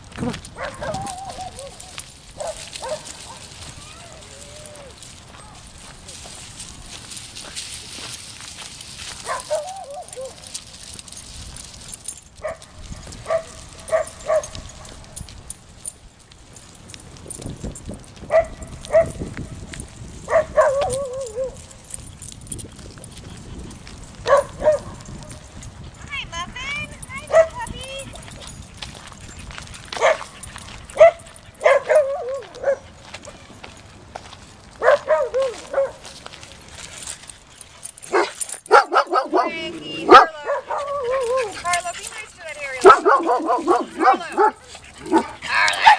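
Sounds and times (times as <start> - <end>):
dogs barking and yipping: 0.2 - 5.2, 6.3 - 16.0, 18.1 - 45.9
dog barking: 0.6 - 3.4, 9.2 - 10.4, 12.4 - 14.6, 18.3 - 19.2, 20.3 - 21.6, 24.2 - 25.0, 27.3 - 27.7, 30.0 - 30.3, 31.0 - 32.9, 34.8 - 36.0, 38.1 - 41.6, 42.8 - 45.9
dog howling: 0.7 - 1.9
dog whining: 0.7 - 1.9, 39.3 - 42.1.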